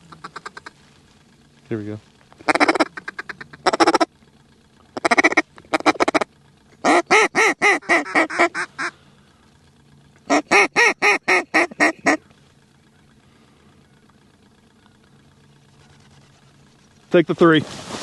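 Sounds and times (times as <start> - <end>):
duck call feed clucks: 0.0 - 0.8, 2.4 - 4.1, 4.9 - 9.0, 10.2 - 12.2
duck call quacks: 0.0 - 0.8, 2.4 - 4.1, 5.0 - 9.0, 10.3 - 12.2.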